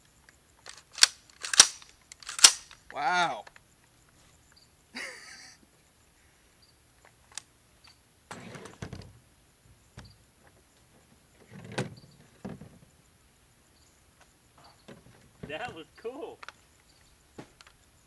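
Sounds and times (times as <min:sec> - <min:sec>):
metallic clicks of a rifle: 0:00.3 - 0:03.7, 0:07.3 - 0:08.0, 0:16.4 - 0:16.6.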